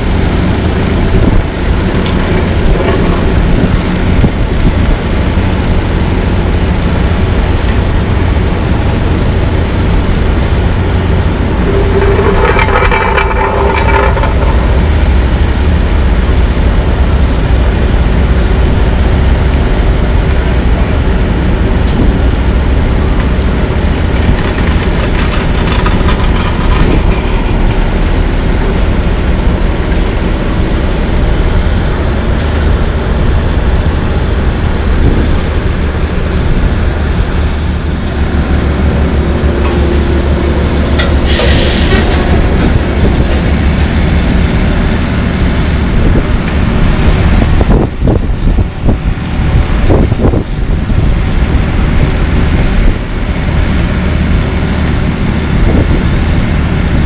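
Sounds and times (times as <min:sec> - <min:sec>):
heavy diesel engines running: 0:00.0 - 0:57.0
high-pitched whine: 0:05.2 - 0:23.8.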